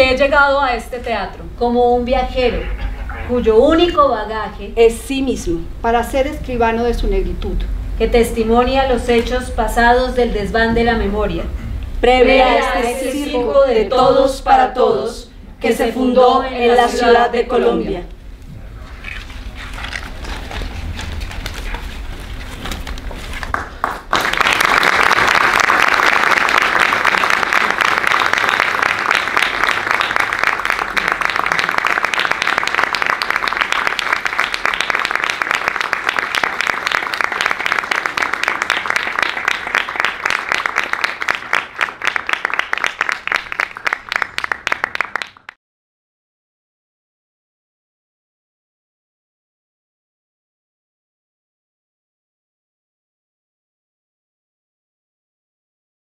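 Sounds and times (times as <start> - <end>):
audience applauding: 23.3 - 45.6.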